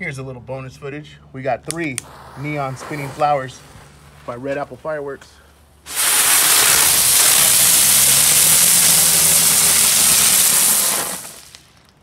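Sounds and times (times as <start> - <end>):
spinning fireworks hissing: 1.8 - 4.4, 5.7 - 12.0.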